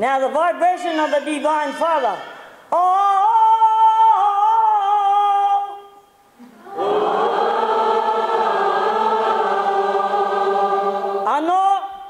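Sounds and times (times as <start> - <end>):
many voices holding a vowel: 6.6 - 12.0.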